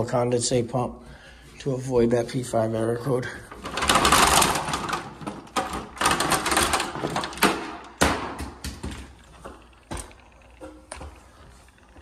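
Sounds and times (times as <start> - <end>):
hands knocking plastic parts: 3.7 - 10.2.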